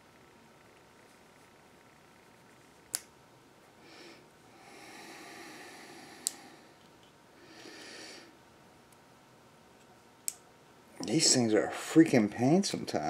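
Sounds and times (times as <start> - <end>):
person breathing through nose: 3.8 - 6.8, 7.4 - 8.4.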